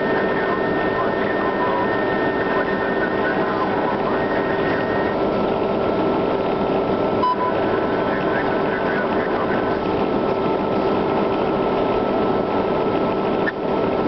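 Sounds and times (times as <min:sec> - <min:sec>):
diesel engine and tyres cruising: 0:00.0 - 0:14.0
steady whine: 0:00.0 - 0:14.0
short beep: 0:07.2 - 0:07.6.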